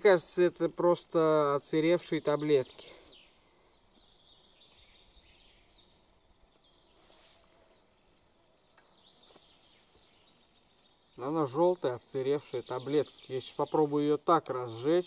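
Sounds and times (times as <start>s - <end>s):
faint bird chirps: 1.8s - 14.9s.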